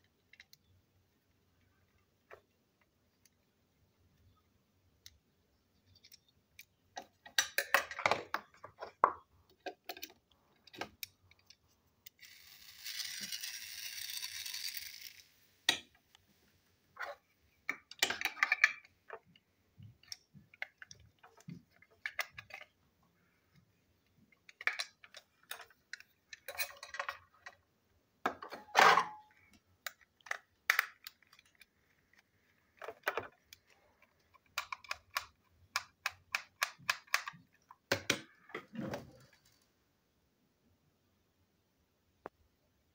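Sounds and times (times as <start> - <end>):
plastic parts tapping: 17.6 - 22.8, 24.0 - 27.6, 28.2 - 38.8.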